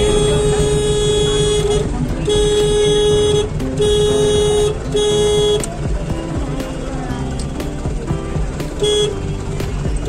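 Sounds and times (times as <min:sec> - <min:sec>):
vehicle horn honking: 0:00.0 - 0:05.8, 0:08.8 - 0:09.4
road traffic rumble: 0:00.0 - 0:10.0.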